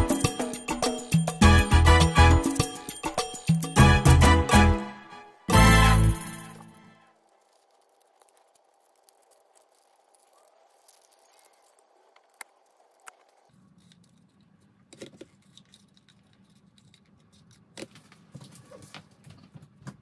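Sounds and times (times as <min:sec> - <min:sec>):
cardboard pieces clicking: 0:07.2 - 0:14.4.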